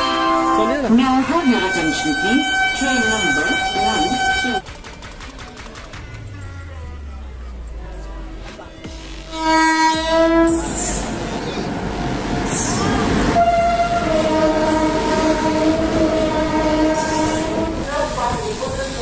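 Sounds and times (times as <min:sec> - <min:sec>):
locomotive horn blowing: 0:00.0 - 0:04.6, 0:09.2 - 0:11.1, 0:12.6 - 0:17.8
rumble of moving train: 0:00.0 - 0:19.0.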